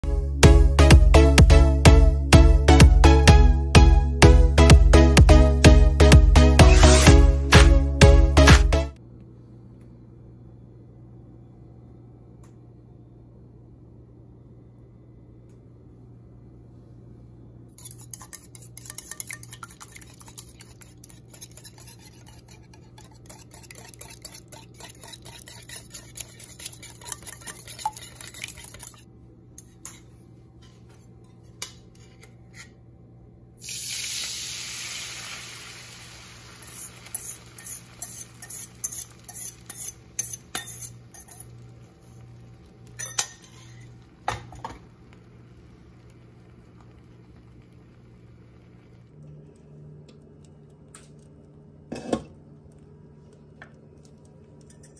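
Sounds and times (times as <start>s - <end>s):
whisk beating eggs in metal bowl: 17.8s - 29.0s, 36.6s - 44.0s
eggs sizzling in pan: 17.8s - 29.1s, 33.6s - 53.8s
metal clinking on metal: 43.0s - 43.6s.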